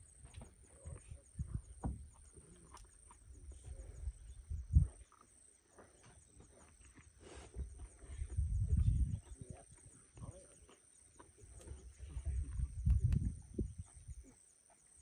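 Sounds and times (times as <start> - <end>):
dull low thumps: 0.0 - 2.5, 3.4 - 5.1, 7.5 - 10.4, 11.5 - 14.3.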